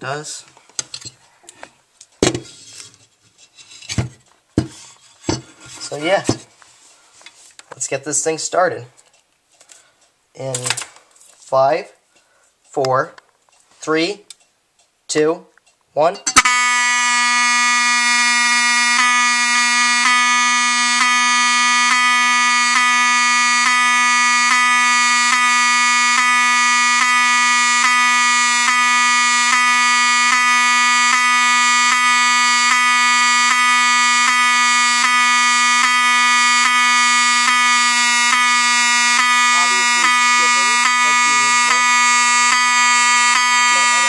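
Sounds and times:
fire alarm horn tone: 16.4 - 44.0.

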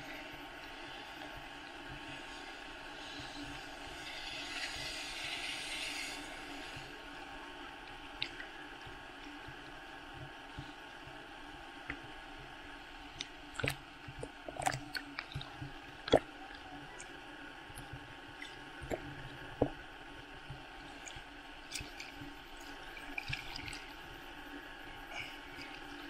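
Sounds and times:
steady hiss: 0.0 - 14.5
muffled water sloshing and splashing: 11.9 - 26.0.

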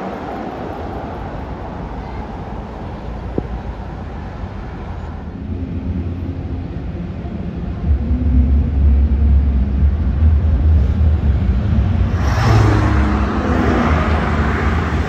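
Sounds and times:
car engines: 0.0 - 15.0
deep engine note: 5.4 - 15.0.

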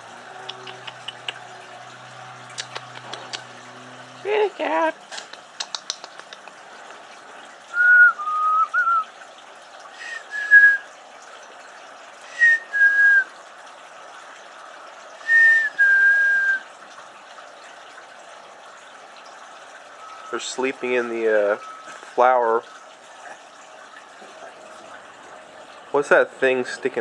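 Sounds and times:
person whistling: 7.8 - 9.0, 10.0 - 10.8, 12.3 - 13.3, 15.2 - 16.6.

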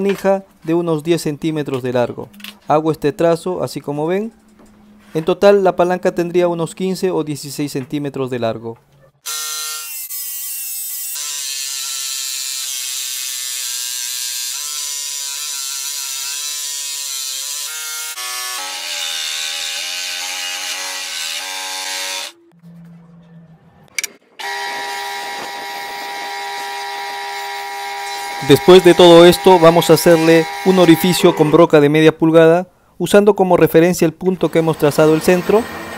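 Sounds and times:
scroll saw cutting wood: 9.2 - 22.4, 24.0 - 31.6, 34.4 - 35.9
spindle sander running: 24.4 - 31.1.

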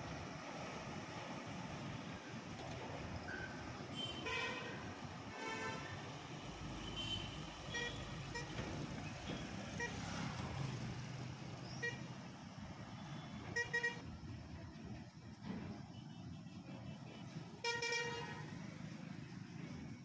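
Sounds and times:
road traffic rumble: 0.0 - 20.0
vehicle horn toots: 3.9 - 5.9, 6.8 - 8.5, 13.1 - 14.0, 15.9 - 18.6.

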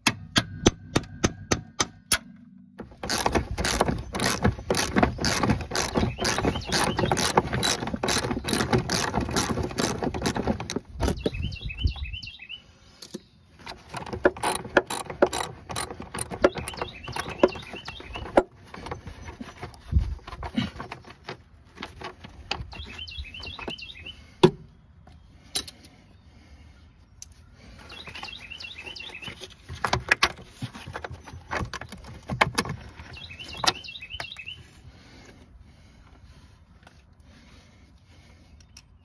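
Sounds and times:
hand ratchet clicking: 2.9 - 11.2, 14.0 - 17.6.

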